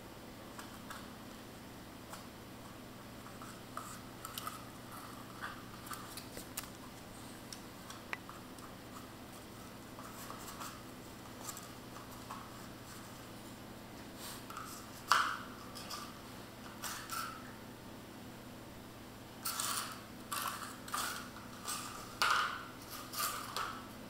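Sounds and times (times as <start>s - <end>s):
faint steady hum: 0.0s - 24.0s
cardboard and claws scratching tile: 8.3s - 13.2s, 19.4s - 23.8s.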